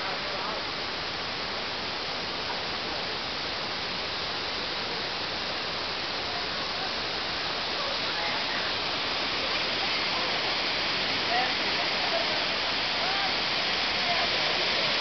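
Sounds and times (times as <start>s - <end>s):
river rushing over rapids: 0.0s - 15.0s.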